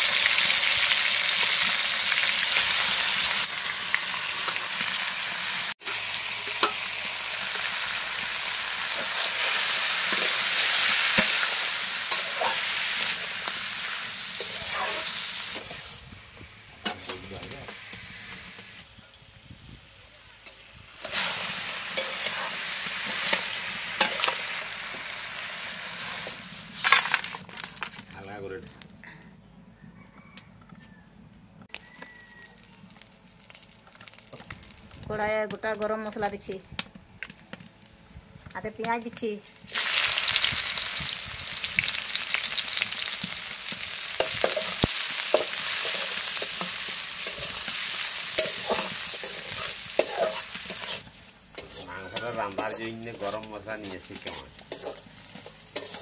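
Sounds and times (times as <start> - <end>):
meat sizzling in a pan: 0.0 - 26.9, 37.6 - 56.0
spatula scraping a pan: 8.9 - 13.2, 14.4 - 15.9, 21.0 - 24.6, 42.5 - 56.0.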